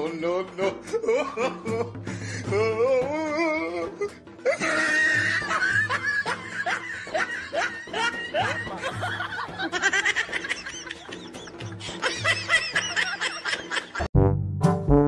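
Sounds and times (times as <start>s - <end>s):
background music with pulsing beat: 0.0s - 15.0s
person snickering laughs: 4.5s - 14.1s.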